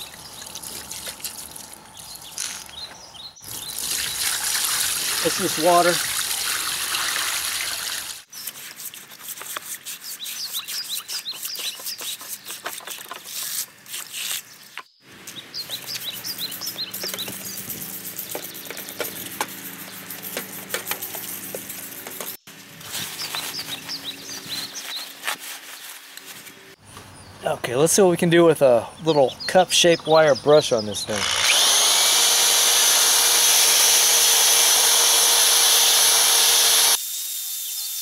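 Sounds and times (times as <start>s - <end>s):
birds chirping: 0.0s - 4.4s, 14.3s - 21.2s, 23.0s - 25.9s, 26.5s - 31.5s
water splashing into tub: 3.8s - 8.2s.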